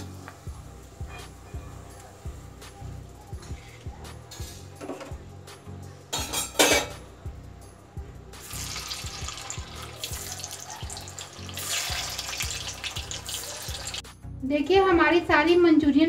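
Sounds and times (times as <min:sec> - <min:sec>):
food deep-frying in oil: 0:08.4 - 0:14.1.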